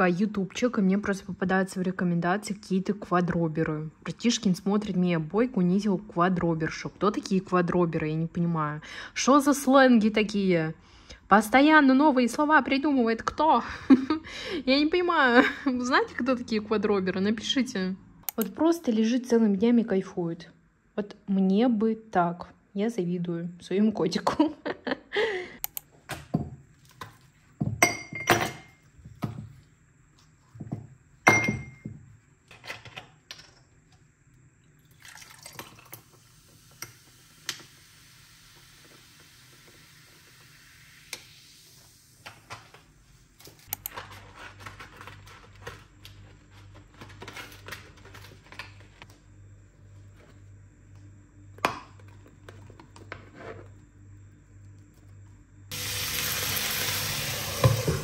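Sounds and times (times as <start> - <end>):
liquid pouring over ice: 34.8 - 36.3.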